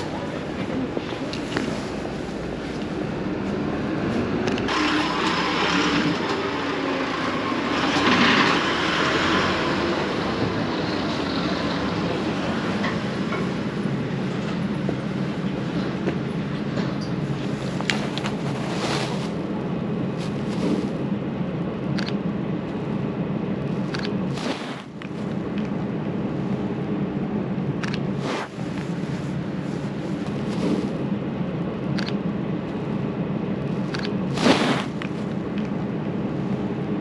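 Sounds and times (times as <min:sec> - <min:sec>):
rumble of passing vehicles: 0:00.0 - 0:37.0
sharp clicks: 0:22.0 - 0:22.2, 0:27.8 - 0:28.0, 0:32.0 - 0:32.2
hiss: 0:34.4 - 0:34.9.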